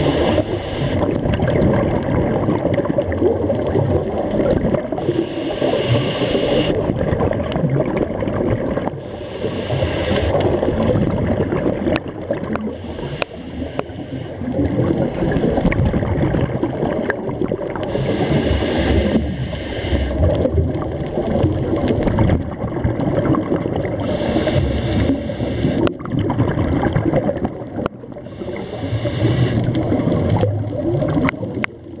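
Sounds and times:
regulator inhale hiss: 0:00.0 - 0:01.0, 0:04.9 - 0:06.8, 0:09.0 - 0:10.7, 0:12.6 - 0:14.5, 0:17.8 - 0:20.3, 0:24.0 - 0:25.9, 0:28.2 - 0:29.8
exhaled air bubbling: 0:00.0 - 0:32.0.

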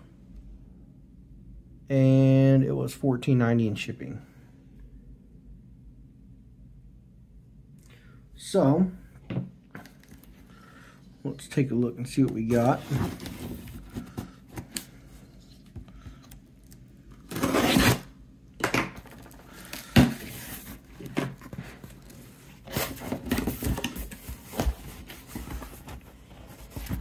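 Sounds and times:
cardboard box rustling: 0:12.4 - 0:15.8, 0:19.1 - 0:27.0.

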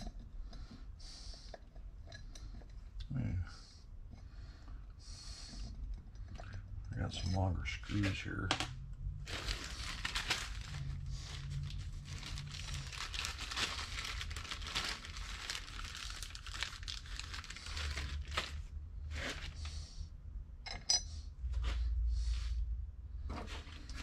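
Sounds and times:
plastic bag crinkling: 0:09.2 - 0:19.7.

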